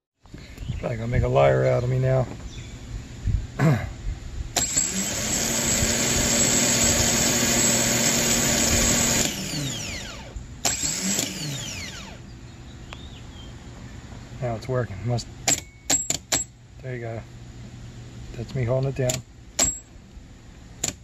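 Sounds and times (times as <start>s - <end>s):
starter motor whining: 4.6s - 12.3s.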